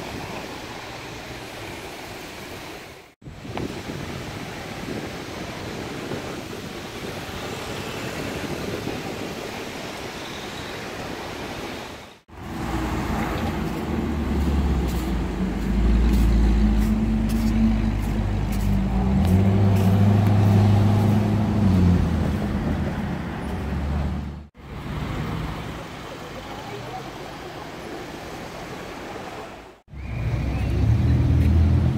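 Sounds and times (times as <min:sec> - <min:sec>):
wind on microphone: 0:03.2 - 0:10.2
city street traffic: 0:06.8 - 0:31.9.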